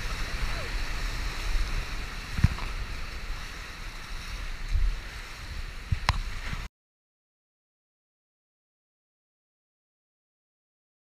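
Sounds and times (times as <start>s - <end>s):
whitewater rushing and crashing: 0.0s - 6.7s
wind buffeting the microphone: 0.0s - 6.7s.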